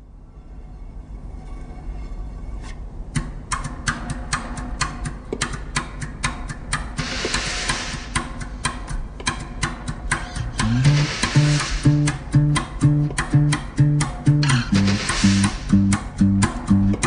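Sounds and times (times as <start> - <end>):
sharp clicking percussion: 3.1 - 17.0
swelling hiss: 7.0 - 8.7, 10.4 - 12.4, 14.5 - 16.1
low drone: 10.2 - 17.0.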